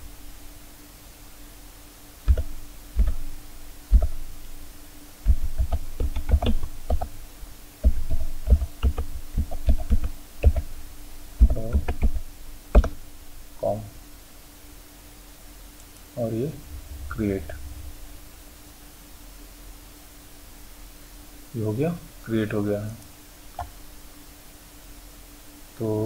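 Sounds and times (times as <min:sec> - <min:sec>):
faint steady hum: 0:00.0 - 0:26.0
keyboard typing: 0:02.3 - 0:03.2, 0:05.3 - 0:07.1, 0:07.8 - 0:10.7, 0:11.4 - 0:12.2, 0:12.8 - 0:13.0.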